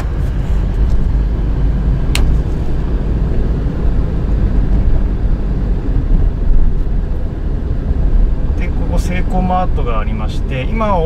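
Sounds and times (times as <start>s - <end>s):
car engine and tyre rumble: 0.0s - 11.0s
sharp click: 2.1s - 2.4s.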